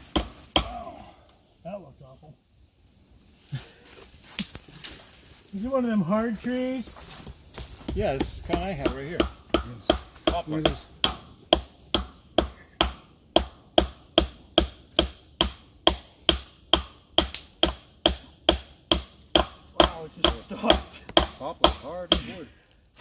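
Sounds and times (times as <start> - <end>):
hammer blows on tree trunk: 7.6 - 22.5.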